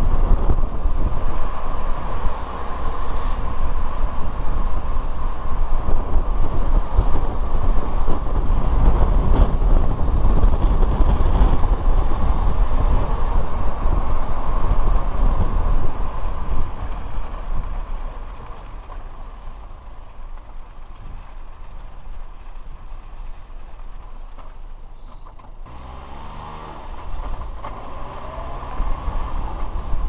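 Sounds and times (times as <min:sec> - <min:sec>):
car engine and road noise: 0:00.0 - 0:30.0.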